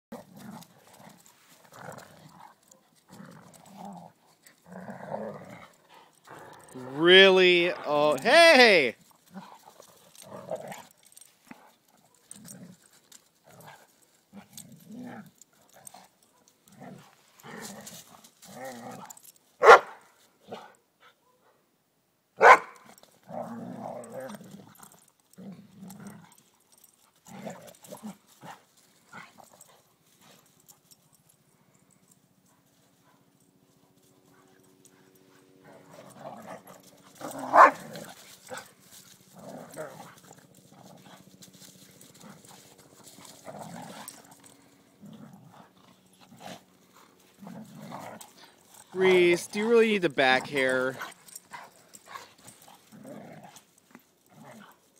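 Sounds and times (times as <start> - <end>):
dogs growling and grunting: 0.1 - 7.0, 9.2 - 19.3, 23.2 - 29.7, 34.4 - 49.2, 50.9 - 54.9
dog barking: 19.6 - 21.4, 22.4 - 22.8, 37.5 - 37.8.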